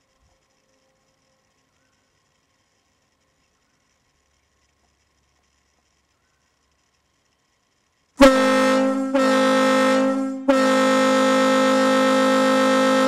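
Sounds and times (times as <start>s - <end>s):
ship horn blasts: 8.2s - 13.0s.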